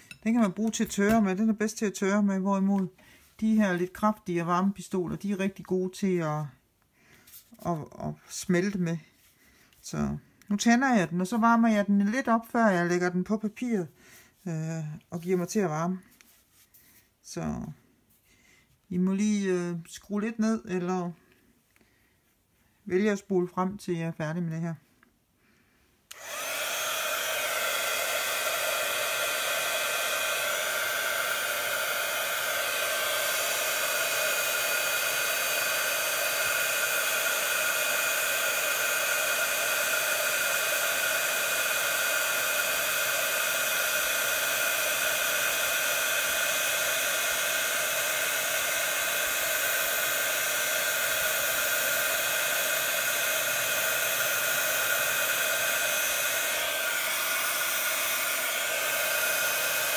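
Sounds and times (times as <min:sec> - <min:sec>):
heat gun blowing air: 0:00.0 - 0:01.3, 0:26.1 - 0:59.9.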